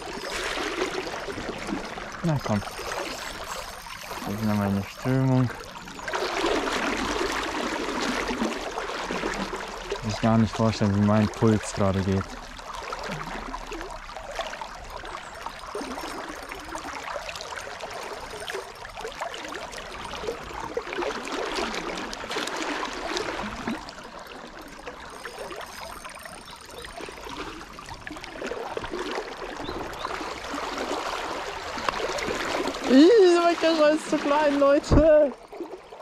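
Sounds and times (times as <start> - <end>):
river water rushing: 28.4 - 35.7.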